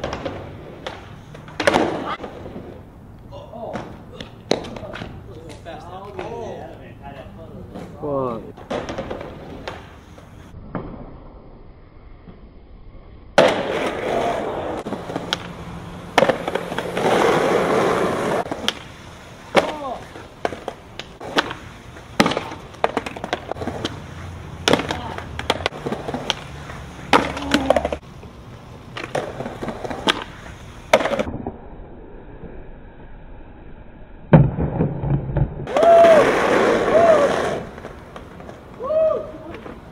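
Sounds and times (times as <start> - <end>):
skateboard slapping down: 0.0 - 2.8, 3.6 - 6.6, 8.6 - 10.0, 13.4 - 28.0, 28.8 - 31.6, 34.3 - 39.9
skateboard tail popping: 0.0 - 6.6, 8.6 - 11.4, 13.4 - 31.6, 34.3 - 39.9
skateboard wheels rolling on concrete: 0.0 - 39.9.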